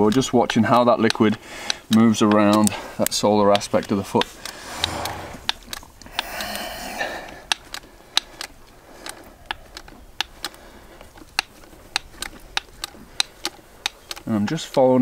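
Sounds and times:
dispensing gun clicking: 0.0 - 15.0
short hiss: 4.5 - 5.5.

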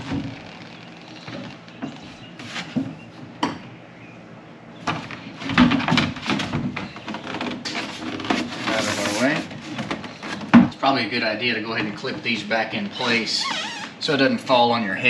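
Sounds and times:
plastic knocking and rubbing: 4.9 - 10.7.

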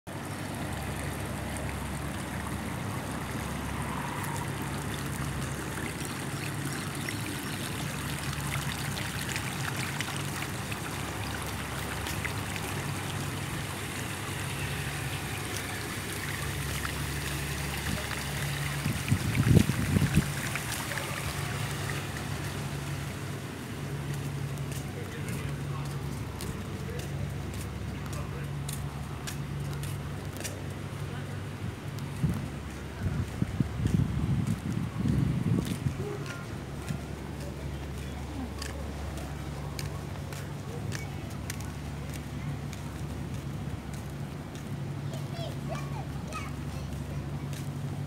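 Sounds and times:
rushing trickling water: 0.1 - 48.0.

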